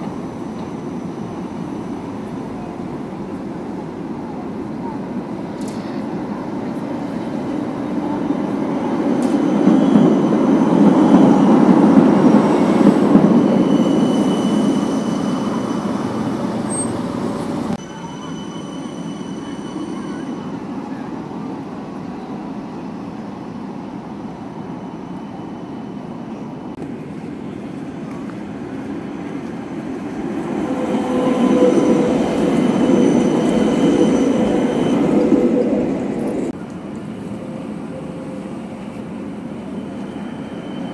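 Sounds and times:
tram wheels rumbling on rails: 0:00.0 - 0:40.9
tram whine: 0:00.0 - 0:40.9
faint high squealing: 0:13.4 - 0:17.0, 0:17.8 - 0:20.6, 0:30.6 - 0:35.2, 0:39.5 - 0:40.9.

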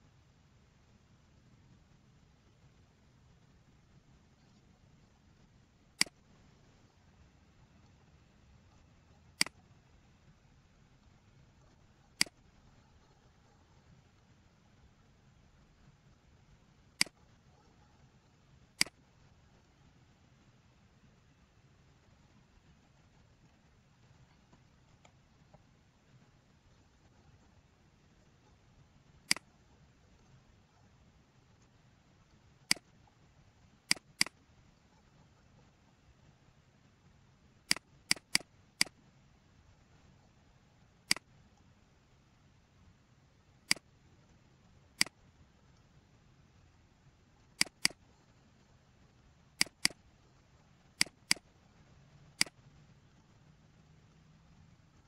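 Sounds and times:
mouse button clicks: 0:06.0 - 0:06.2, 0:09.4 - 0:09.6, 0:29.3 - 0:29.5, 0:33.9 - 0:34.4, 0:37.7 - 0:39.0, 0:47.6 - 0:48.0, 0:49.6 - 0:50.0, 0:51.0 - 0:51.5, 0:52.4 - 0:52.6
computer mouse clicks: 0:06.0 - 0:06.3, 0:08.7 - 0:09.6, 0:11.6 - 0:13.3, 0:16.9 - 0:17.6, 0:18.8 - 0:19.3, 0:29.2 - 0:30.4, 0:32.6 - 0:33.0, 0:33.9 - 0:34.4, 0:37.7 - 0:39.0, 0:41.1 - 0:41.3, 0:43.6 - 0:43.9, 0:45.0 - 0:45.2, 0:47.4 - 0:48.2, 0:49.6 - 0:50.0, 0:50.9 - 0:51.5, 0:52.4 - 0:52.7.

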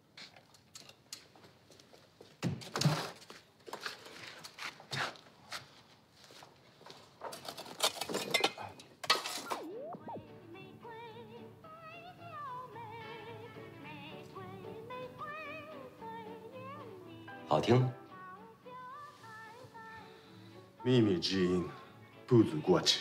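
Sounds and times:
radio static bursts: 0:09.4 - 0:10.3
radio tuning whistle: 0:09.4 - 0:10.4.

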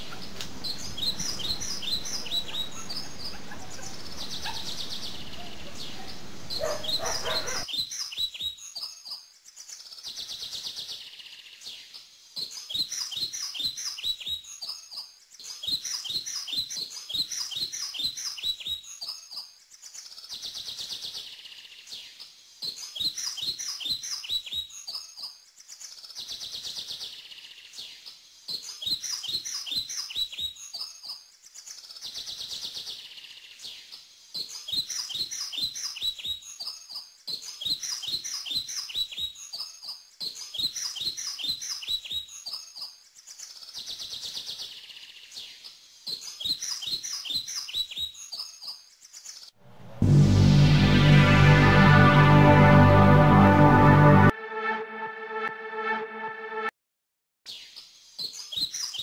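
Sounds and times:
steady background hiss: 0:00.0 - 0:06.6
birds chirping: 0:00.0 - 0:09.2.

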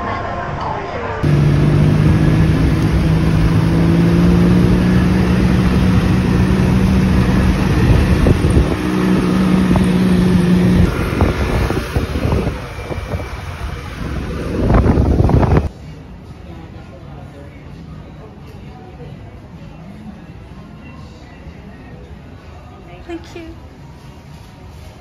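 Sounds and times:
motorcycle engine running: 0:01.2 - 0:15.7
wind and road noise: 0:01.2 - 0:15.8.

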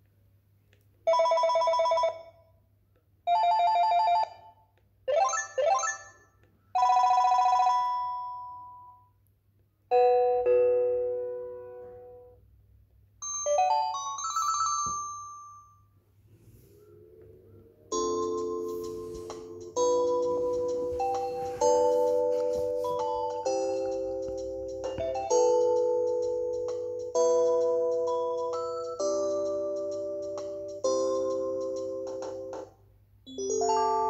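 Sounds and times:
phone ringtone previews: 0:17.9 - 0:26.4.

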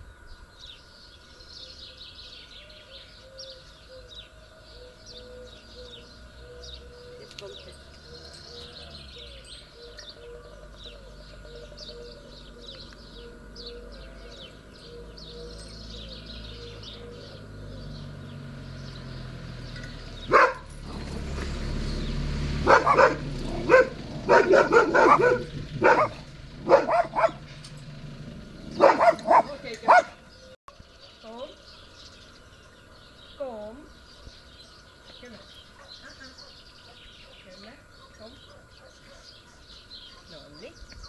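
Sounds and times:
faint bird chirping: 0:00.0 - 0:20.6, 0:28.5 - 0:41.0
large dog barking: 0:20.2 - 0:21.1, 0:22.6 - 0:27.5, 0:28.7 - 0:30.2.

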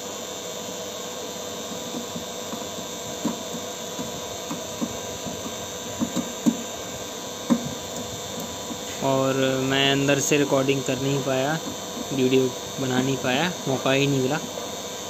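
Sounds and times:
vacuum pump running: 0:00.0 - 0:15.0
screwdriver clicks and taps: 0:01.8 - 0:06.6.

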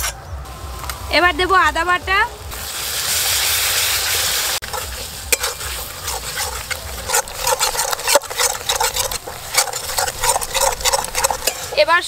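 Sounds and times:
spice paste sizzling in oil: 0:02.2 - 0:12.0
spatula scraping metal pan: 0:04.6 - 0:12.0.

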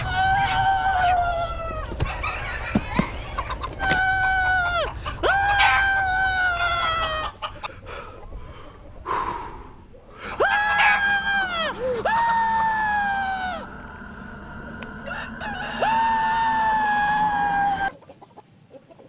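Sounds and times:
roosters crowing: 0:00.0 - 0:07.7, 0:10.2 - 0:17.9
man screaming: 0:10.3 - 0:13.8, 0:15.6 - 0:17.9.

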